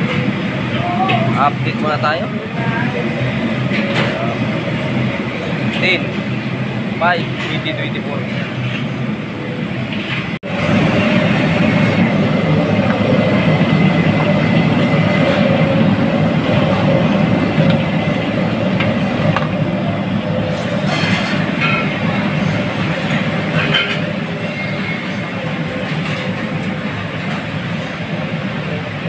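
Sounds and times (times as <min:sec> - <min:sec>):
gas burner roaring: 0:00.0 - 0:29.0.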